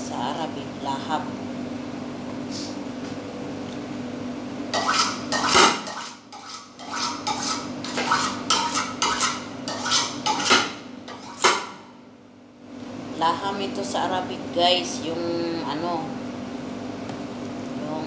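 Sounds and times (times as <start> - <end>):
steady hum: 0.0 - 18.0
pots and pans clanking: 4.8 - 11.8.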